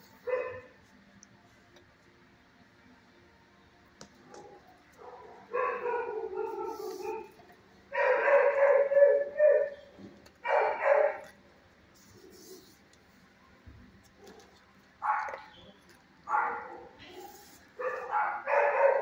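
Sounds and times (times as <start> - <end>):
dog barking: 0.2 - 0.7, 4.4 - 7.4, 8.0 - 9.8, 10.4 - 11.3, 14.2 - 15.5, 16.3 - 17.2, 17.8 - 19.0.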